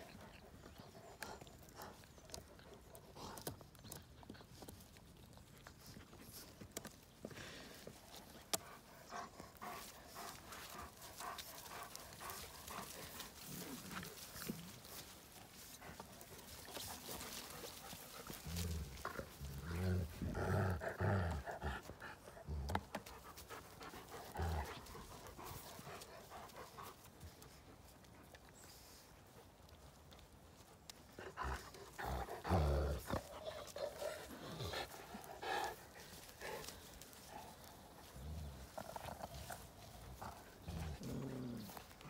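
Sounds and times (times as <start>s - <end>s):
dogs panting: 0.0s - 42.0s
dogs grunting: 8.6s - 15.1s, 15.8s - 26.9s, 31.1s - 42.0s.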